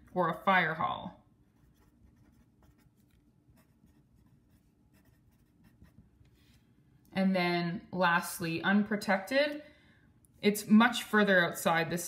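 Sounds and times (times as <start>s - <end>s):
pen scratching on paper: 1.6s - 6.0s.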